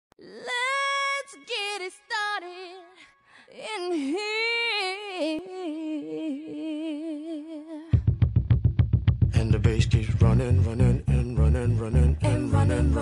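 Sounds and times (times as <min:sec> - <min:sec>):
unaccompanied singing voice: 0:09.4 - 0:13.0.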